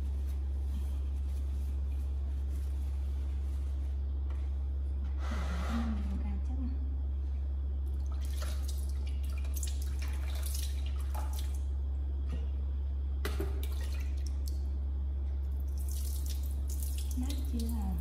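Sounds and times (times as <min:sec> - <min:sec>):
steady low hum: 0:00.0 - 0:18.0
water splashing in plastic basins: 0:07.9 - 0:11.8, 0:13.2 - 0:14.7, 0:15.5 - 0:18.0.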